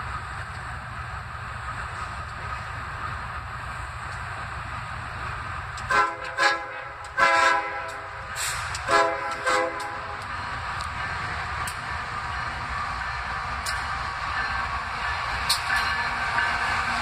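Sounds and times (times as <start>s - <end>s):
train rumbling: 0.0s - 17.0s
locomotive air horn blasts: 5.9s - 10.2s.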